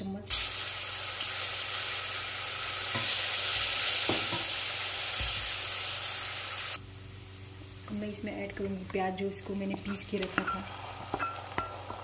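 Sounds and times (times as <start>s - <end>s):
paste sizzling in hot oil: 0.3s - 7.9s, 9.9s - 12.0s.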